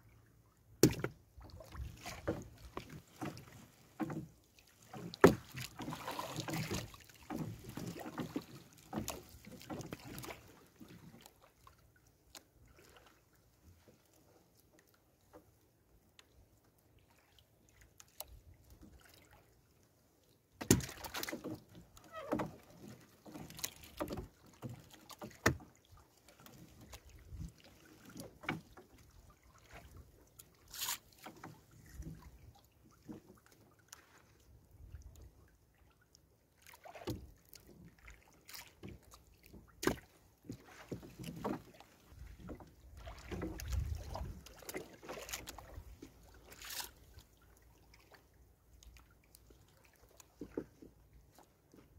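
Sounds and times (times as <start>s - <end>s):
water sloshing: 0.5s - 15.7s, 17.0s - 51.9s
knocks against boat hull: 0.8s - 1.2s.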